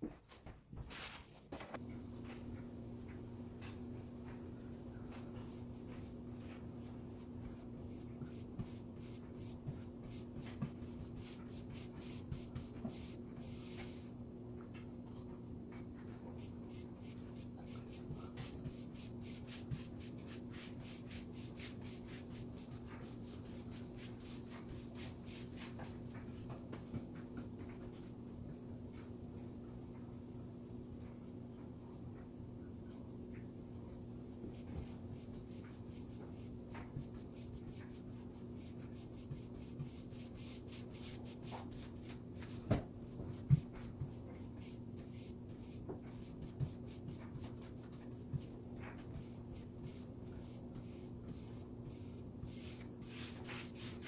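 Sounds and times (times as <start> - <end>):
low steady hum: 0.0 - 54.0
paintbrush swishing strokes: 5.2 - 14.2, 16.3 - 26.3, 34.4 - 54.0.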